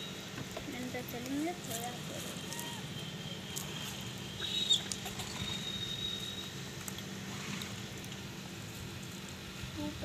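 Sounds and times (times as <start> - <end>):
thin high whistle-like tone: 2.4 - 6.6.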